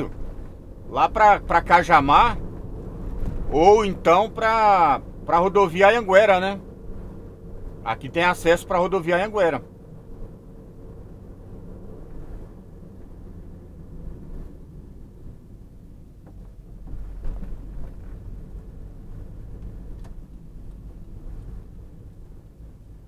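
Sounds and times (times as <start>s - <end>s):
car engine and road rumble: 0.0s - 23.0s.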